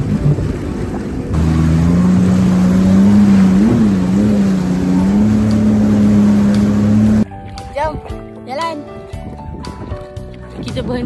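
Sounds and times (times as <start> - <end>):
jet ski engine droning: 0.0 - 7.3
rushing water and wind: 0.0 - 11.0.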